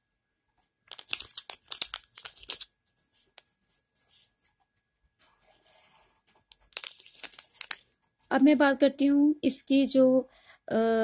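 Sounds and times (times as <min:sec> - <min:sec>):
plastic sachet crinkling: 0:00.9 - 0:02.7, 0:06.5 - 0:08.0.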